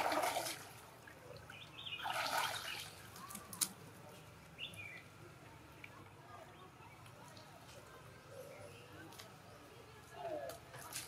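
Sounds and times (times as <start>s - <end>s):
monkeys splashing in water: 0.0s - 3.7s.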